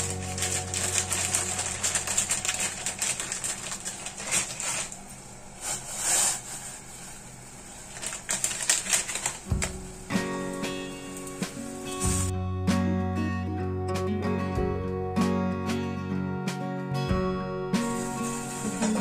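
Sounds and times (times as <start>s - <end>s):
background music: 0.0s - 3.4s, 9.5s - 19.0s
plastic packet crinkling: 0.0s - 6.3s, 7.8s - 9.9s, 18.0s - 19.0s.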